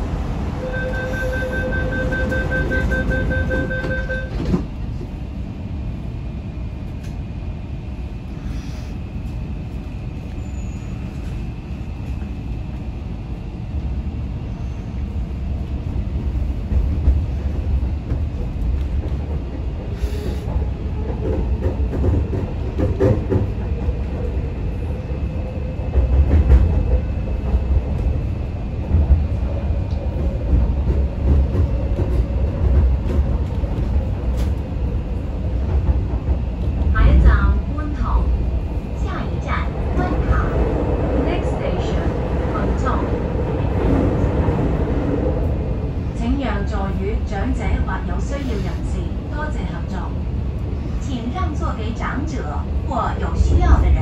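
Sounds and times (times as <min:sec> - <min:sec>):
train rumble in tunnel: 0:00.0 - 0:54.0
train doors shutting: 0:00.2 - 0:05.2, 0:28.8 - 0:38.2
door-closing warning beeps: 0:00.7 - 0:04.6.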